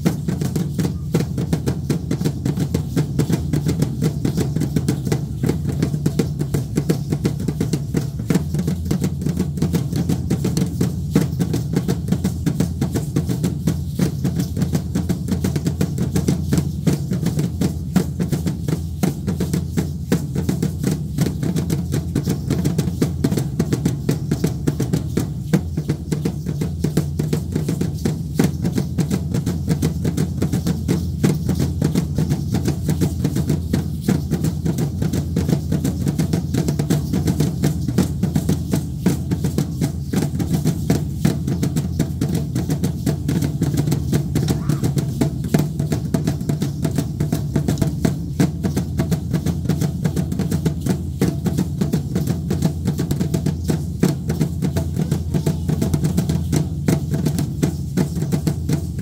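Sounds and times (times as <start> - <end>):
deep drum beaten fast: 44.4 - 45.3.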